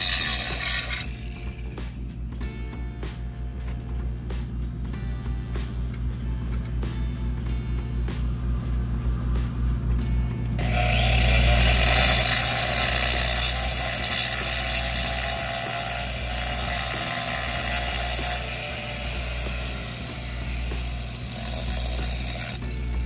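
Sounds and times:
background music: 0.0 - 23.0
low hum: 0.5 - 13.8.

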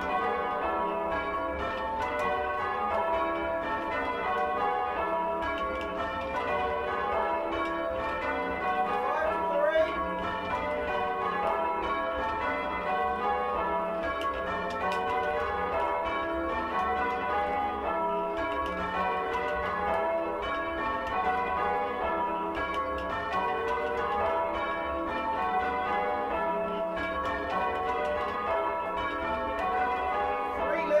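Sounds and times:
church bells change ringing: 0.0 - 31.0.

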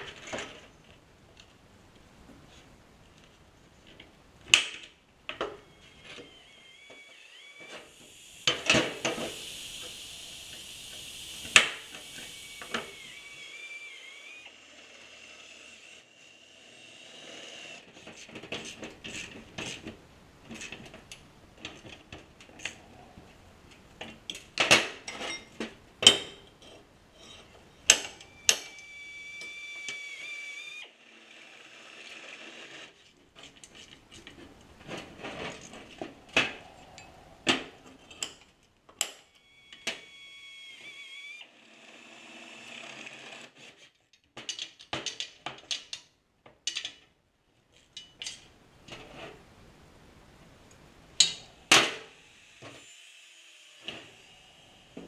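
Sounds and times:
small power tool whining: 5.4 - 18.0, 27.2 - 33.0, 39.2 - 43.6, 52.1 - 55.0
tools clanking on metal workbench: 24.0 - 28.7, 47.9 - 49.1.

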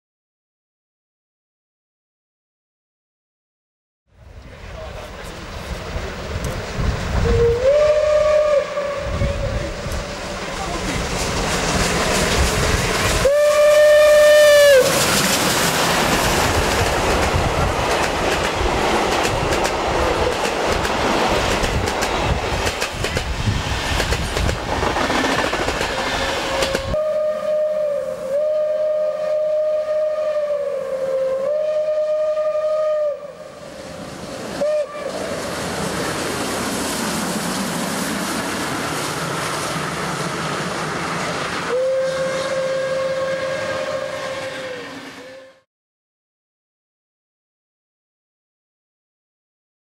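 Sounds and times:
steam train rushing past: 4.2 - 45.7
steam whistle blasts: 7.2 - 9.8, 13.2 - 15.2, 25.9 - 34.0, 34.6 - 35.5, 41.6 - 45.7.

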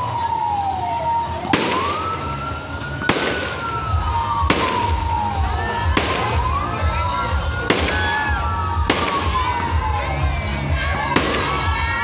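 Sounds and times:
siren wailing: 0.0 - 12.0
fireworks bursting with bangs: 1.1 - 6.6, 7.6 - 9.7, 11.1 - 12.0.

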